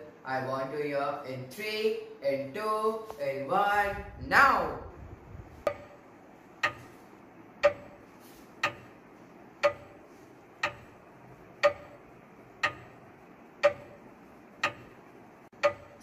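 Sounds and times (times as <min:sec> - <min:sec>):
clock ticking: 0:05.6 - 0:16.0.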